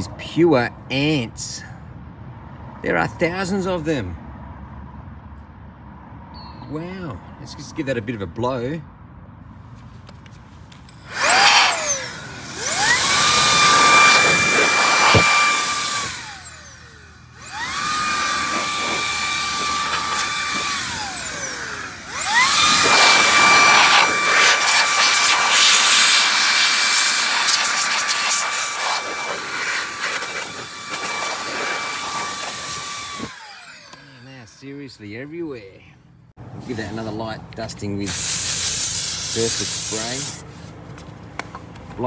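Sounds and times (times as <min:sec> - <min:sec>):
blower whining with air rush: 0:10.9 - 0:35.0, 0:38.0 - 0:40.4.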